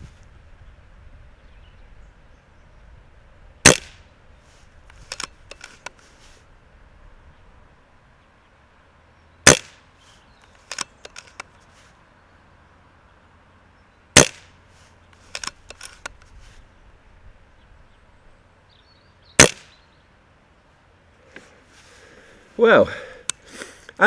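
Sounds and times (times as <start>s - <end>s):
air rifle shots: 3.6s - 4.1s, 9.4s - 9.8s, 14.2s - 14.6s, 19.4s - 19.8s
rifle action clicks: 4.8s - 6.0s, 10.5s - 11.5s, 15.2s - 16.3s.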